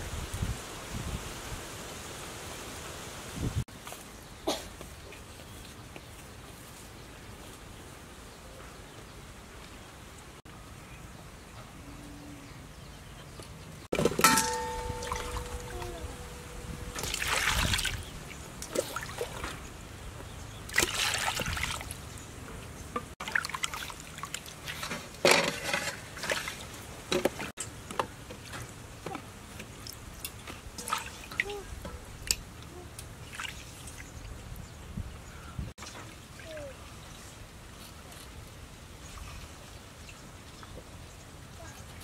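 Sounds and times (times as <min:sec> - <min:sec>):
fruit clunking into metal bowl: 0:14.0 - 0:17.3
water splashing in bowl: 0:14.0 - 0:19.6, 0:20.7 - 0:22.0, 0:23.2 - 0:25.1.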